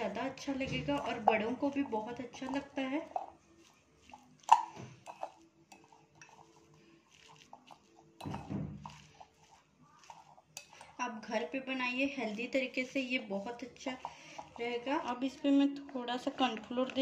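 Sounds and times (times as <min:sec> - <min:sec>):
spoon stirring mash in bowl: 0:00.0 - 0:17.0
spoon clinking against bowl: 0:00.9 - 0:11.0.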